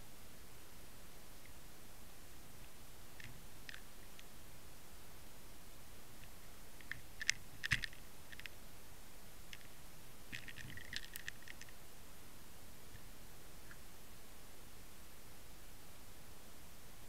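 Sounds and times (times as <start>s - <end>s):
steady hiss: 0.0s - 17.0s
underwater clicks and ticks: 6.8s - 8.6s, 10.3s - 11.7s.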